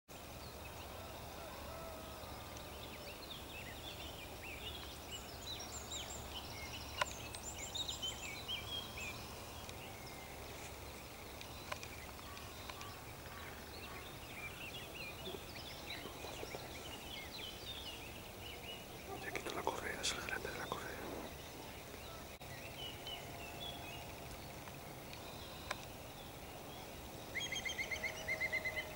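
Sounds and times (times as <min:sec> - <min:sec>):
small birds singing and chirping: 0:00.2 - 0:28.9.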